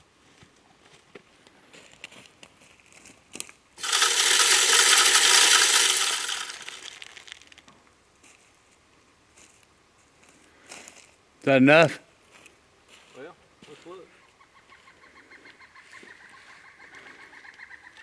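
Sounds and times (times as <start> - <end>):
corn kernels scattering: 3.8 - 7.6
feeder motor spinning: 3.8 - 7.6.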